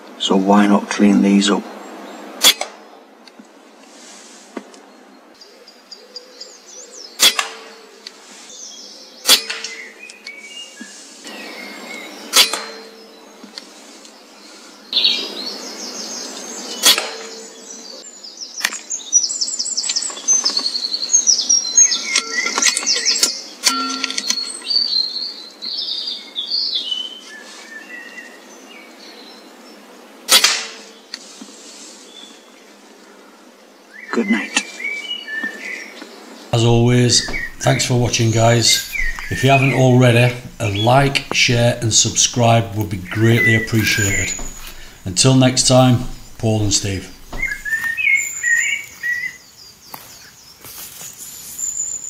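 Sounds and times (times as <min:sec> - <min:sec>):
faint birds chirping: 0:00.0 - 0:52.0
air rifle shots: 0:30.3 - 0:30.9.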